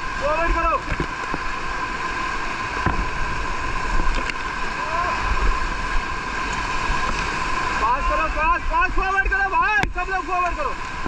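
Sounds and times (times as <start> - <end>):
whitewater rapids rushing: 0.0 - 11.0
faint shout: 4.8 - 5.3.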